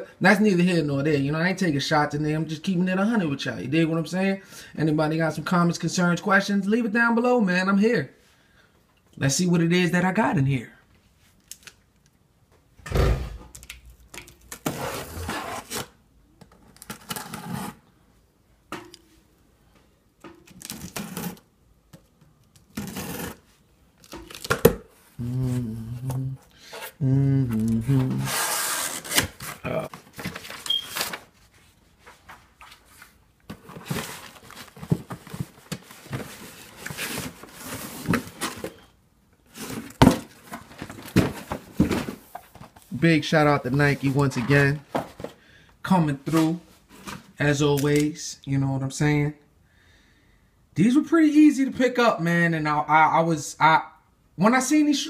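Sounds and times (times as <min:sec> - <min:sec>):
cardboard flaps rustling and scraping: 0:27.9 - 0:38.8, 0:39.5 - 0:42.9.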